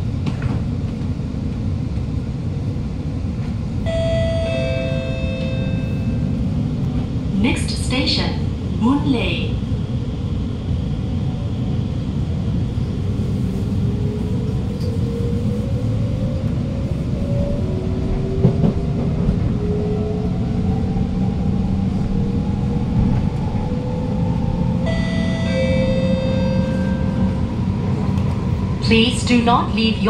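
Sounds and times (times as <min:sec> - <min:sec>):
metro train rumbling: 0:00.0 - 0:30.0.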